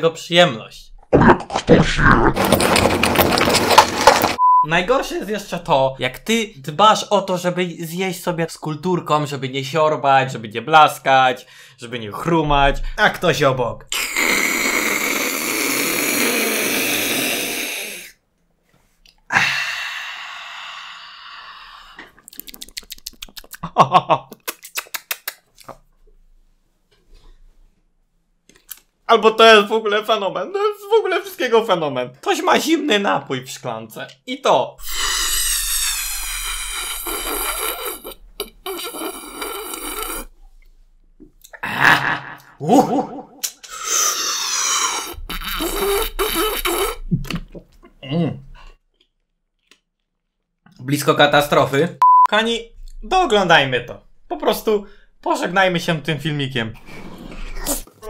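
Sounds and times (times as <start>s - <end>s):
person slurping: 13.9s - 18.2s, 19.1s - 23.6s, 34.8s - 40.6s, 43.6s - 47.9s
close-miked mouth eating sounds: 21.9s - 23.7s, 24.3s - 25.7s, 34.8s - 40.3s, 43.6s - 48.0s.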